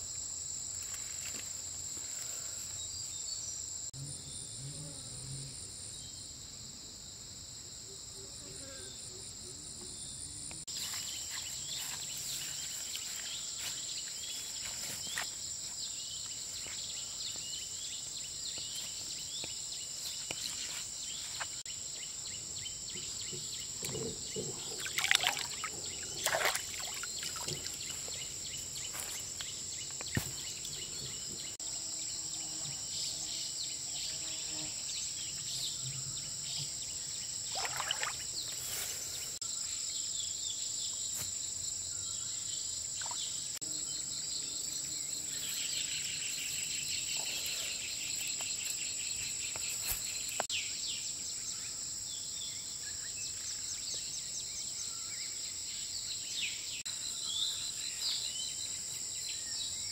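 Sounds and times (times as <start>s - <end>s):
insects chorus: 0.0s - 59.9s
water splashing from wading: 24.8s - 27.8s, 37.5s - 38.3s.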